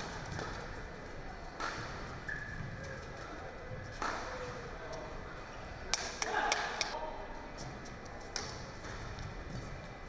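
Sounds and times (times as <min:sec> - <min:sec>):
murmur of indoor hall: 0:00.0 - 0:10.0
rackets striking shuttlecock: 0:01.5 - 0:02.5.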